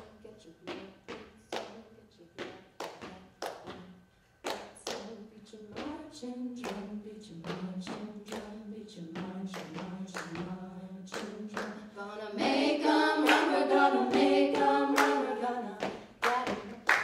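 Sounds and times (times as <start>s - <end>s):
vocal percussive beat: 0.0s - 17.0s
women singing a sustained chord: 10.7s - 17.0s.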